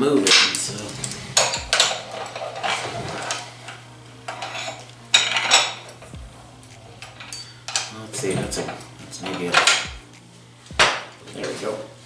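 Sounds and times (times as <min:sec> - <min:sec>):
metal tools clinking and knocking: 0:00.3 - 0:03.4, 0:04.3 - 0:06.1, 0:06.9 - 0:09.9.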